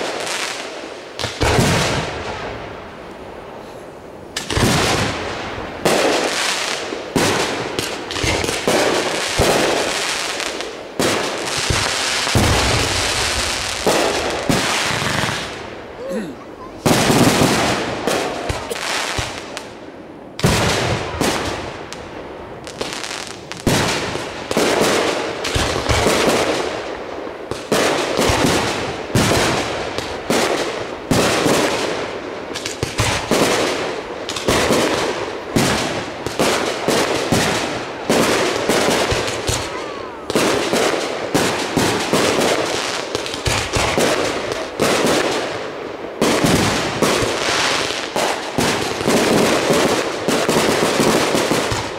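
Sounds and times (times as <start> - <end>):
fireworks bursts and reports: 0.0 - 51.9.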